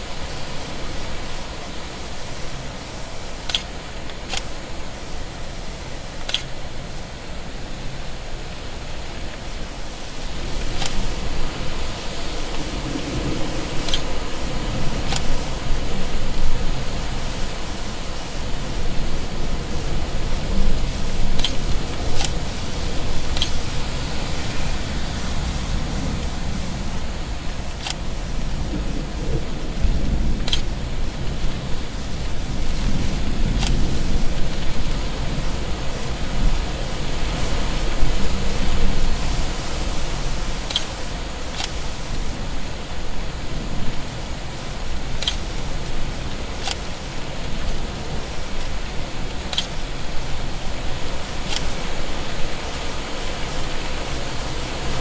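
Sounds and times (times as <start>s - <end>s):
hiss: 0.0s - 55.0s
rushing storm noise: 0.0s - 55.0s
sharp clicks: 6.2s - 6.5s, 27.8s - 28.0s, 30.4s - 30.7s, 45.2s - 45.5s
thunder rumble: 9.8s - 49.5s
low rumble: 10.4s - 16.7s.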